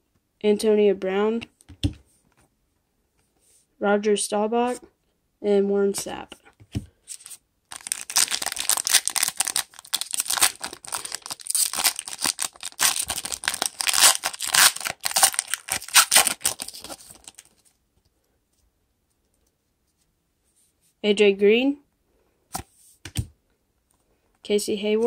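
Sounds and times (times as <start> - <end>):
foil wrapper tearing and crinkling: 7.2 - 17.6.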